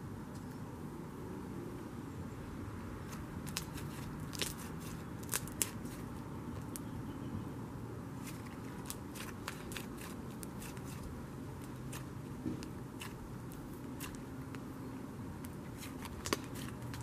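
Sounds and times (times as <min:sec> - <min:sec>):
low rumble of passing traffic: 0:00.0 - 0:17.0
slime crackling and popping: 0:03.4 - 0:05.8, 0:15.4 - 0:17.0.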